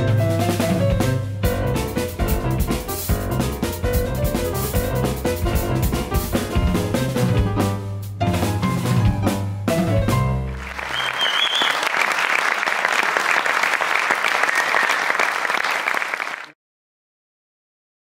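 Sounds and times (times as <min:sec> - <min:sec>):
jazz piano and drums: 0:00.0 - 0:11.2
audience applauding: 0:10.5 - 0:16.6
whistle from crowd: 0:10.8 - 0:12.2.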